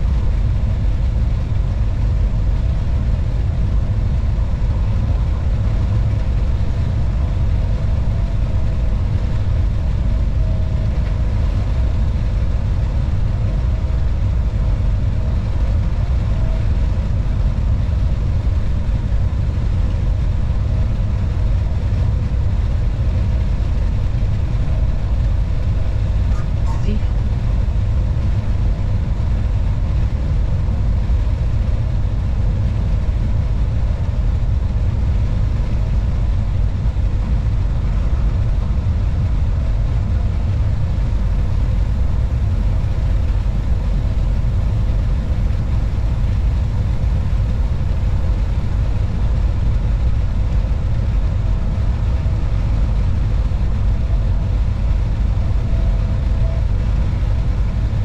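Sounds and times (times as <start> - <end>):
electric locomotive rumble: 0.0 - 58.0
faint steady tones: 0.0 - 58.0.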